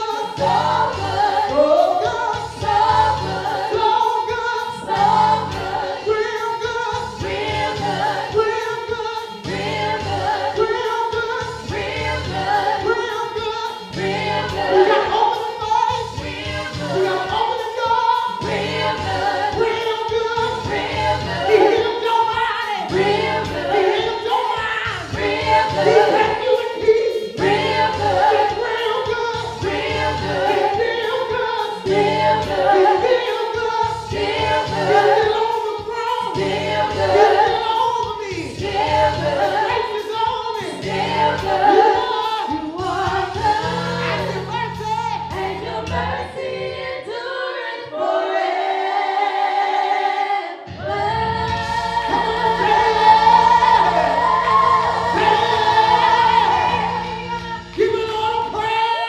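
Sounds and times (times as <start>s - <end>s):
choir singing gospel: 0.0s - 59.0s
low instrumental accompaniment: 50.8s - 58.9s.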